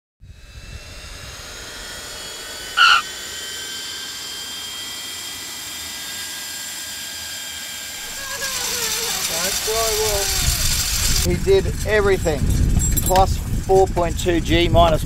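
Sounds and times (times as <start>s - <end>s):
jet turbine engine whining: 0.3s - 12.7s
loud high-pitched squeak: 2.8s - 3.0s.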